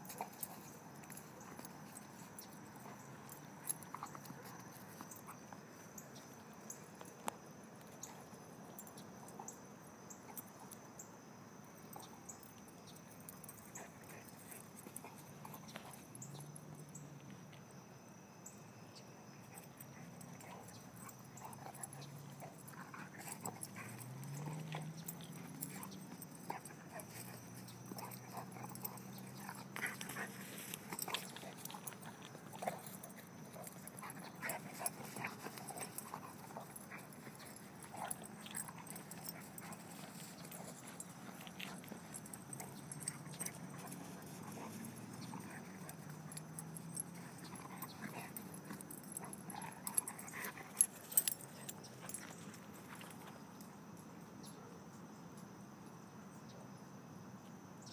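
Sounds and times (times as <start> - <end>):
dog sounds: 19.6 - 52.5
patter of dog paws: 19.7 - 53.4.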